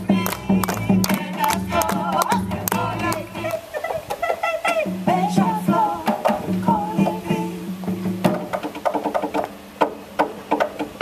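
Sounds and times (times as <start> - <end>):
hand drum strikes: 4.8 - 11.0.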